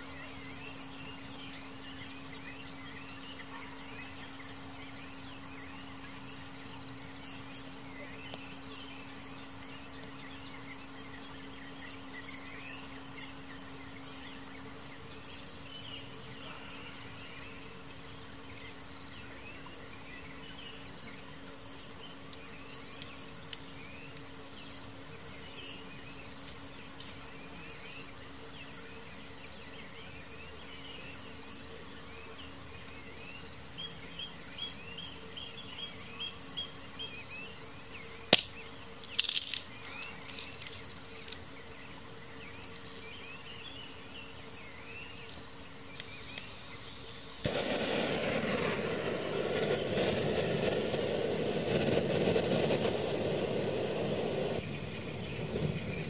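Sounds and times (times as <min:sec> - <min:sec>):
soft chirping: 0:44.8 - 0:56.0
gas stove burning with a hiss: 0:45.3 - 0:56.0.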